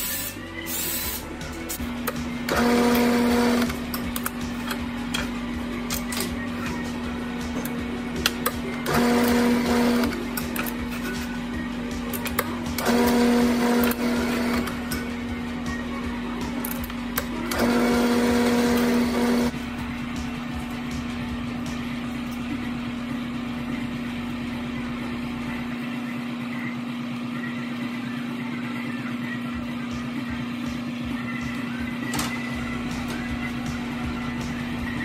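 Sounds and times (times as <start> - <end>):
drill press boring plastic: 17.1 - 19.5.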